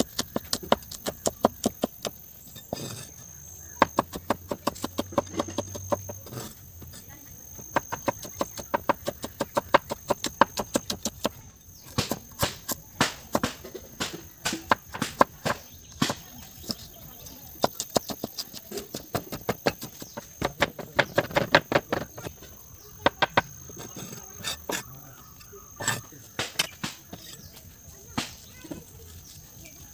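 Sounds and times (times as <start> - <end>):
cleaver chopping on wood: 0.0 - 3.0, 3.7 - 6.5, 7.6 - 16.9, 17.6 - 22.4, 25.8 - 27.4.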